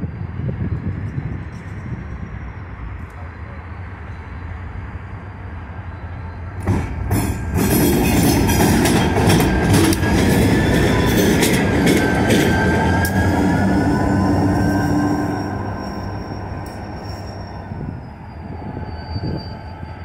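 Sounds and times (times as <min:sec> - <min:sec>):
diesel locomotive engine: 0:00.0 - 0:20.0
steel wheels clicking over rails: 0:06.6 - 0:13.6
thin wheel squeal: 0:12.0 - 0:20.0.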